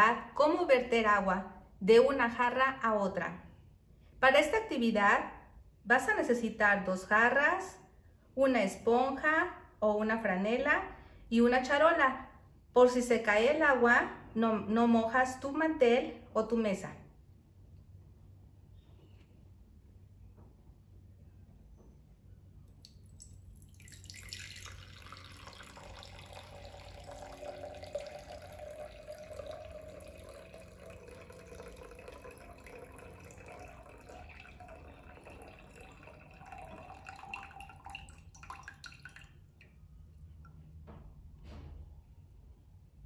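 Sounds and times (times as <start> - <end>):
water pouring into glass pitcher: 22.7 - 39.8
water drips: 22.7 - 40.6.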